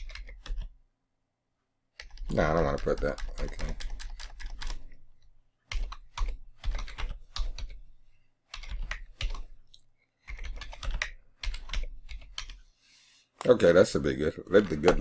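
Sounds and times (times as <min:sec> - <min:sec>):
keyboard typing: 0:00.0 - 0:00.8, 0:02.0 - 0:12.6, 0:14.5 - 0:15.0.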